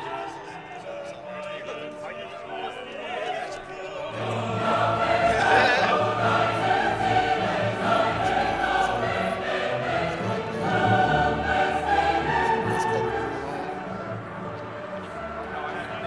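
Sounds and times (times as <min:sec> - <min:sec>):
choir-like singing: 0:00.0 - 0:16.0.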